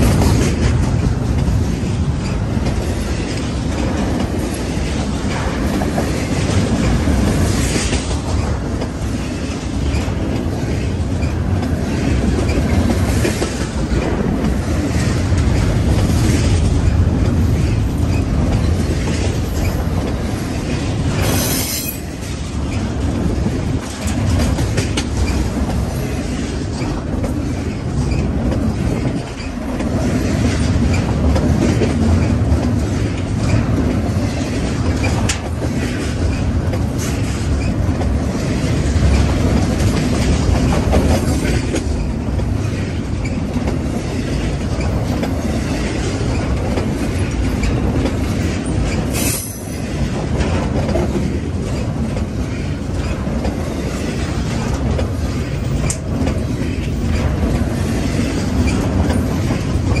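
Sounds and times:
freight train wheels rumbling: 0.0s - 60.0s.

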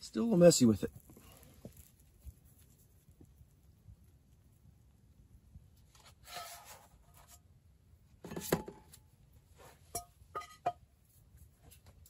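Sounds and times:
utensil scraping a pan: 6.1s - 7.4s.

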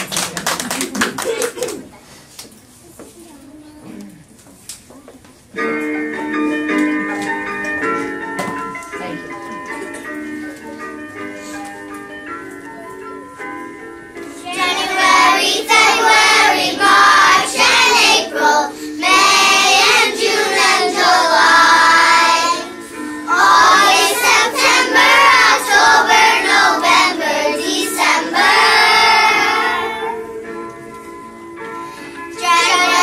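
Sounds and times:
music accompaniment: 4.9s - 33.0s
children singing together: 14.4s - 30.3s, 32.3s - 33.0s.

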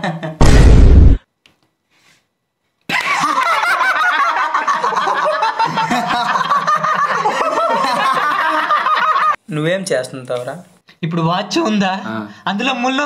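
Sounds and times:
young men laughing: 2.9s - 9.4s.

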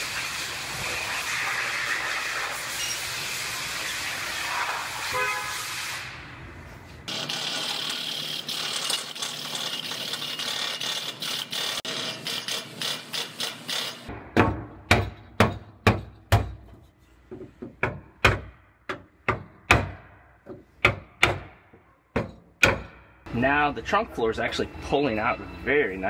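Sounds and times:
hammer striking wooden block: 14.1s - 16.7s, 17.6s - 23.1s.

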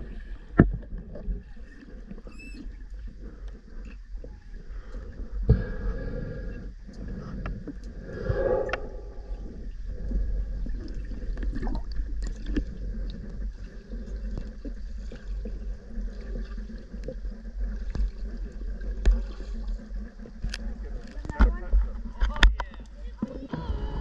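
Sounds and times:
low underwater rumble: 0.0s - 24.0s
manatee squeak: 2.2s - 2.9s
small underwater clicks: 6.8s - 23.5s.

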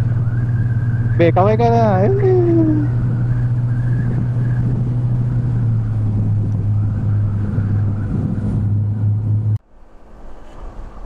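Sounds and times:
scooter engine running: 0.0s - 8.7s
wind and road noise: 0.0s - 11.0s.

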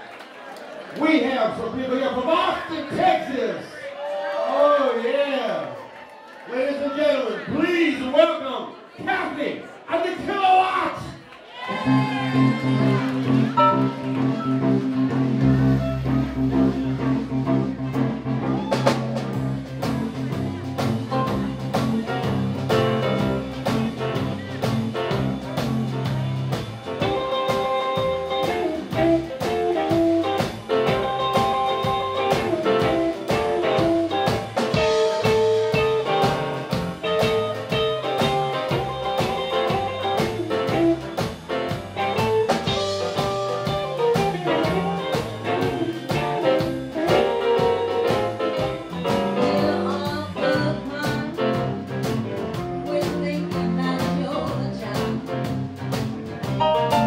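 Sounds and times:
bass: 10.0s - 57.0s
electric guitar: 11.5s - 57.0s
drum kit beat: 11.7s - 57.0s
keyboards: 11.9s - 57.0s.

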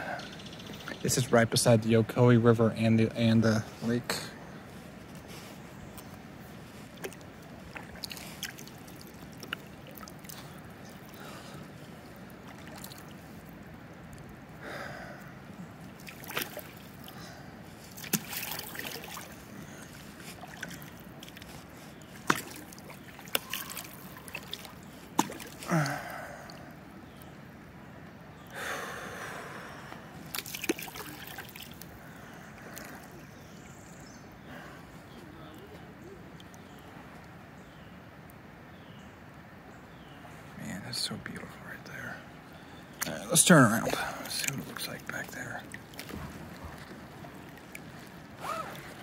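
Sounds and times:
water trickling and dripping: 5.9s - 14.6s, 15.6s - 27.4s, 30.2s - 34.2s, 42.9s - 49.0s
paddle strokes swishing: 17.7s - 25.7s.

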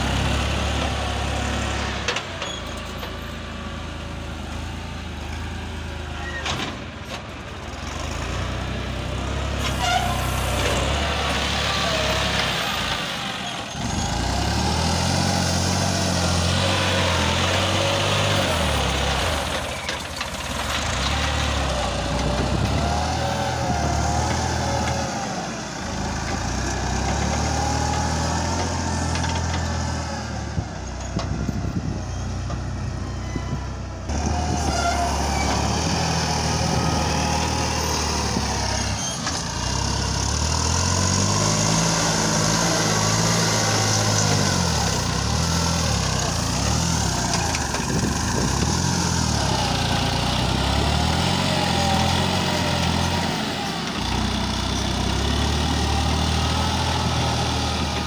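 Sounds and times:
tractor diesel engine revving: 0.0s - 58.0s.

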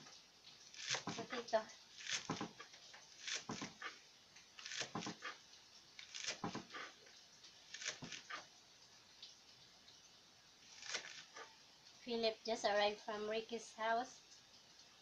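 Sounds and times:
knife chopping on cutting board: 0.8s - 1.4s, 3.2s - 3.8s, 4.6s - 5.3s, 6.1s - 6.7s.

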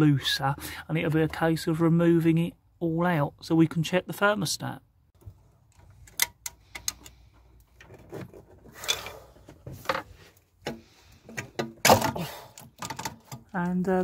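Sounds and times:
engine parts clicking and knocking: 5.2s - 13.8s.

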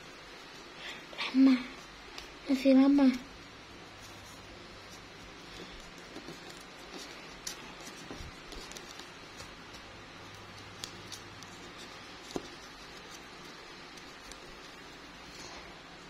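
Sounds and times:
cardboard tiles scraping: 4.0s - 15.7s.

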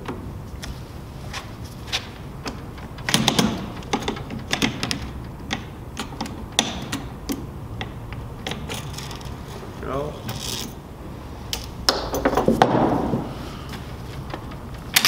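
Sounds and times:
loud knocks: 11.9s - 13.4s.

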